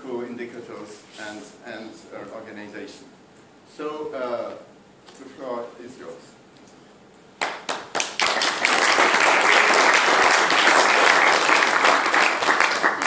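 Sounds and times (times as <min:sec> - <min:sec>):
audience applauding: 0:07.4 - 0:13.0.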